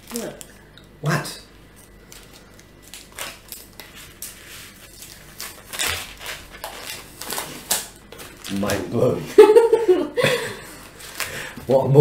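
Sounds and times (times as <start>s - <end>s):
plastic wrapper crackling: 0.0s - 0.6s, 1.8s - 9.4s.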